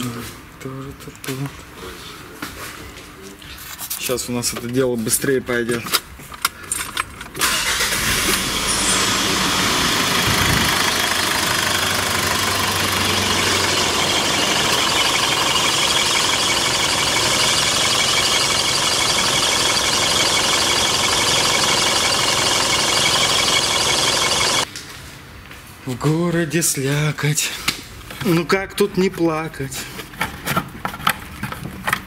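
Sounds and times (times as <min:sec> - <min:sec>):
car engine starting and idling: 0:07.4 - 0:24.7.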